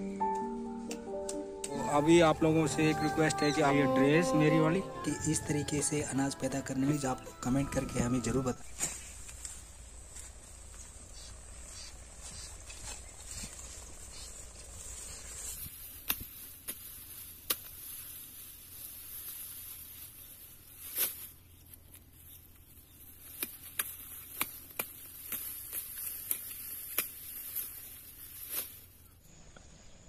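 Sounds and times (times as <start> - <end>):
leaves rustling: 1.7 - 29.2
plant stalks cracking: 12.6 - 29.0.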